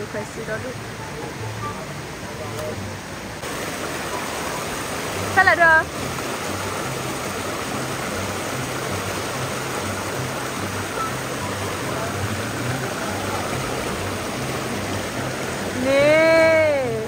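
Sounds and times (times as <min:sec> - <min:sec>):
stream flowing over rocks: 0:00.0 - 0:17.0.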